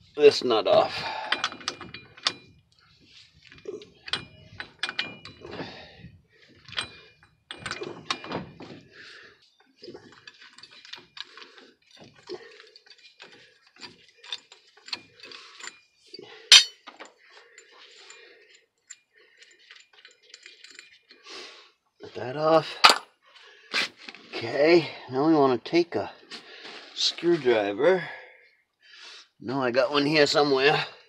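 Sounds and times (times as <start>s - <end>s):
metal scraping: 16.5s - 16.8s
sharp metallic clank: 16.5s - 16.8s.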